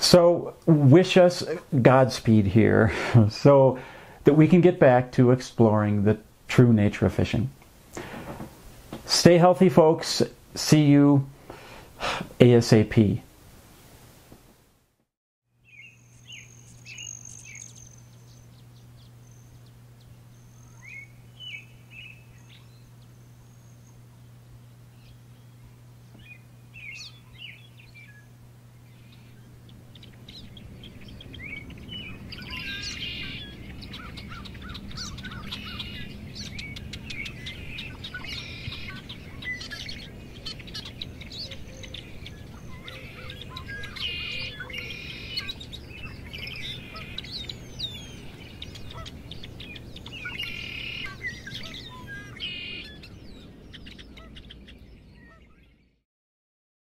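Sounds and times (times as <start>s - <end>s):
low steady hum: 0.0s - 56.0s
birds chirping and singing: 15.6s - 56.0s.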